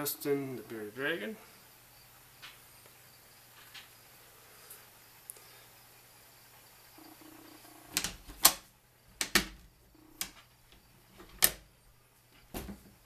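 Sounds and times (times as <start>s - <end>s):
enclosure door and latches clicking: 7.9s - 9.6s, 11.2s - 11.7s.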